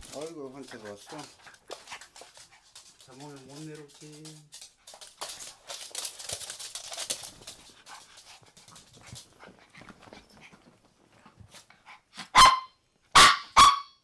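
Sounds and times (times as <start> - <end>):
dog barking sharply: 12.3 - 14.0.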